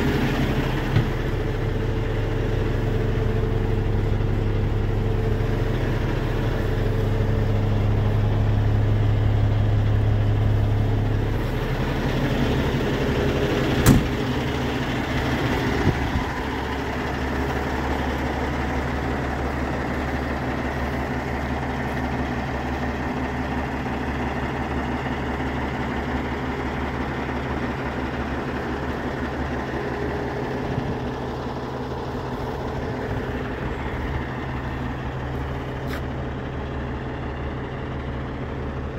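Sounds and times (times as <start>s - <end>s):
diesel truck engine idling: 0.0s - 38.9s
sharp knock: 13.8s - 14.2s.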